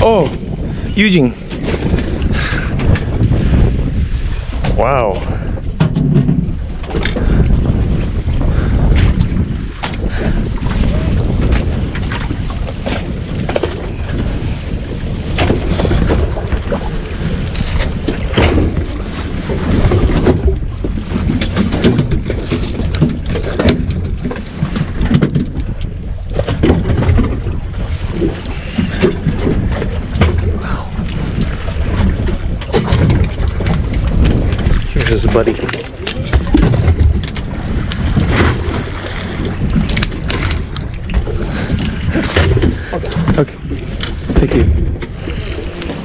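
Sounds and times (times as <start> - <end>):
wind buffeting microphone: 0.0 - 46.0
knocks and clatter: 5.7 - 7.3, 19.6 - 25.8, 26.4 - 27.6, 32.0 - 38.8.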